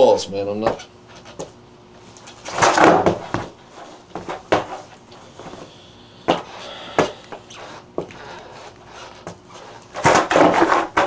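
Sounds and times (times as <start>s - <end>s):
skateboard clacking on carpet: 4.1s - 4.8s, 9.2s - 11.0s.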